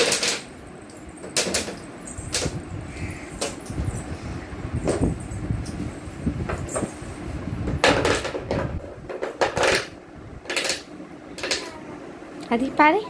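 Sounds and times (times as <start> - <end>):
plastic parts rubbing: 7.8 - 11.7.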